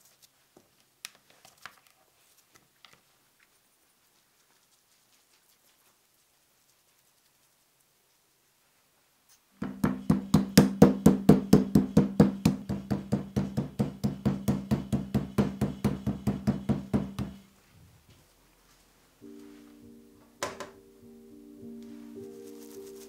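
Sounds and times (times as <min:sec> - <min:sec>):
mallet pounding on wooden board: 0:09.6 - 0:17.4
music: 0:19.2 - 0:23.0.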